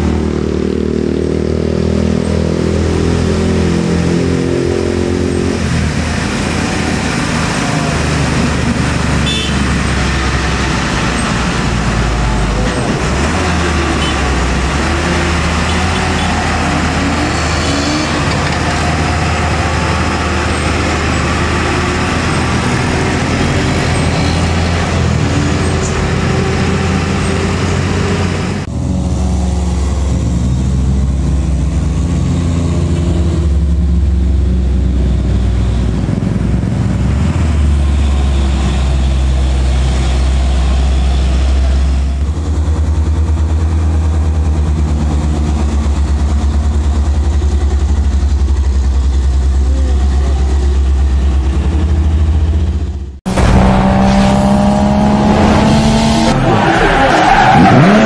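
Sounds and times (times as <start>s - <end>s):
diesel truck engines droning: 0.0s - 58.0s
engine revving sound effect: 48.8s - 58.0s.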